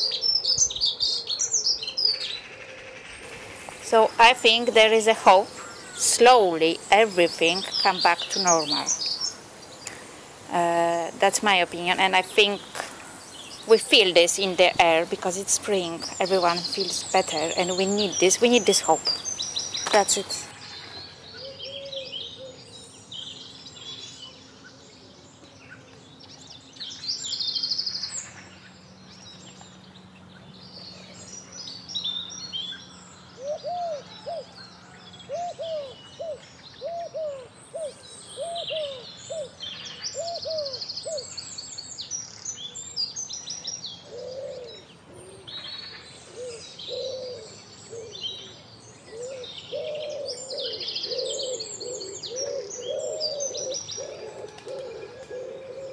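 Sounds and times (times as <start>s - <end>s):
birds singing high phrases: 3.2s - 20.6s
lower bird call: 44.0s - 55.9s.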